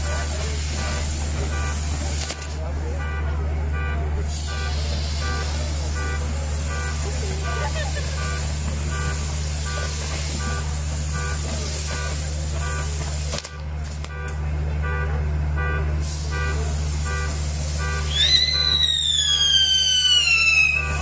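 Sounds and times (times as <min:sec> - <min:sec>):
fireworks hissing sparks: 0:04.2 - 0:14.1, 0:16.0 - 0:21.0
high whistle gliding down: 0:18.1 - 0:21.0.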